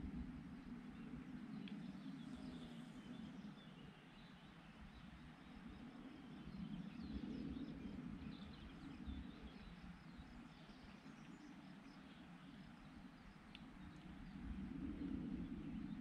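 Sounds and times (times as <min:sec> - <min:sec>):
low steady rumble: 0:00.0 - 0:03.6.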